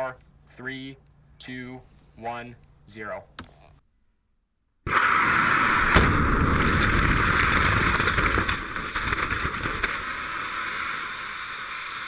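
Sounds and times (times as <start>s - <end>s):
sharp crack: 4.8s - 12.0s.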